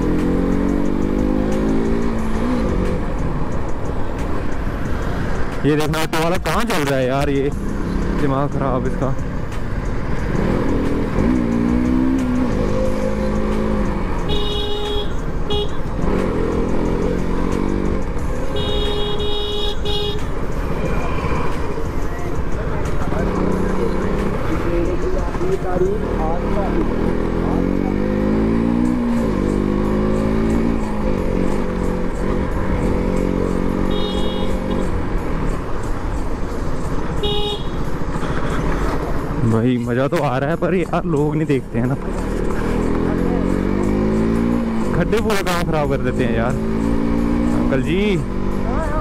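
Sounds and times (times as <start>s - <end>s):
motorcycle engine revving: 0.0s - 5.7s, 6.7s - 39.7s, 40.5s - 49.0s
vehicle horn honking: 14.2s - 15.9s, 18.5s - 20.3s, 33.8s - 34.8s, 37.2s - 37.8s.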